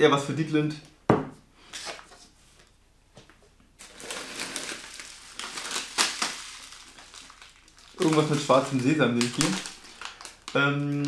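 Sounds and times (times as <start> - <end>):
tube knocking on table: 1.1 - 1.4
snack bag crinkling: 3.8 - 11.0.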